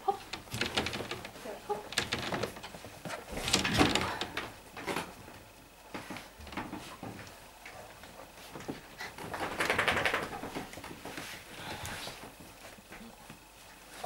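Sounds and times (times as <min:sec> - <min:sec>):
small knocks and clicks: 0:00.0 - 0:05.1
puppies scuffling on blanket: 0:05.9 - 0:14.0.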